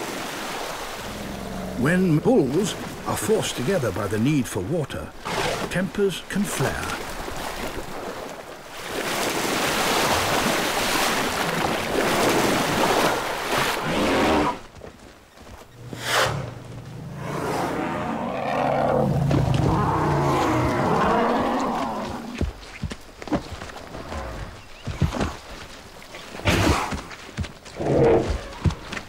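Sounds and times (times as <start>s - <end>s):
water sloshing and churning: 0.0s - 29.0s
elephant bellowing roar: 16.0s - 22.4s.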